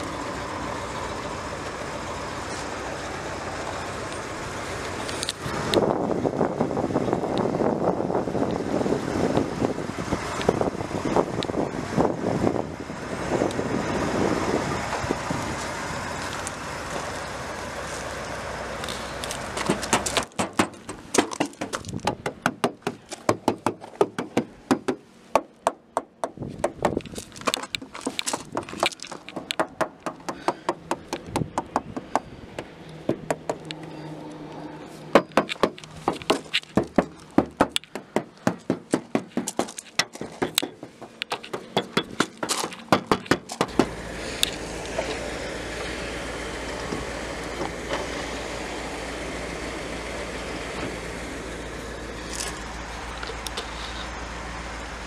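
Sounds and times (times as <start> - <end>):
fingers tapping on car body: 19.6 - 33.8, 35.1 - 43.9.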